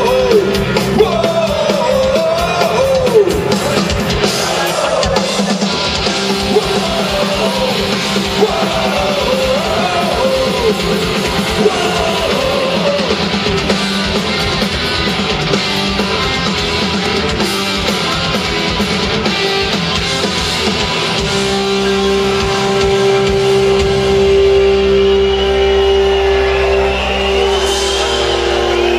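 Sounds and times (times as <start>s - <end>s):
live punk rock band: 0.0s - 28.9s.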